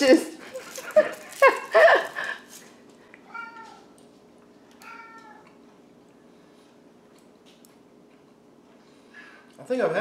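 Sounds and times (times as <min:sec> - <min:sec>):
cat meowing faintly: 0:03.2 - 0:04.0, 0:04.8 - 0:05.5.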